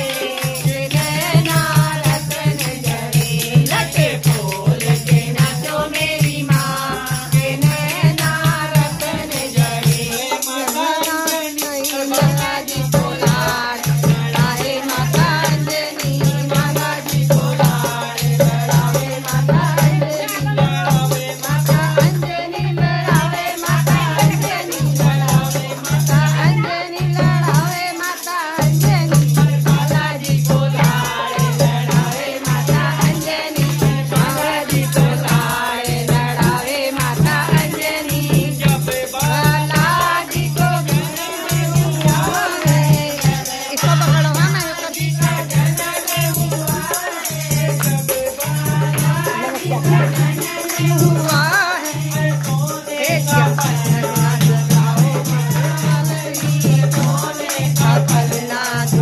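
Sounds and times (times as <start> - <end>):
hand-clapping: 0.0 - 59.0
rattling percussion: 0.0 - 59.0
women singing together: 0.0 - 59.0.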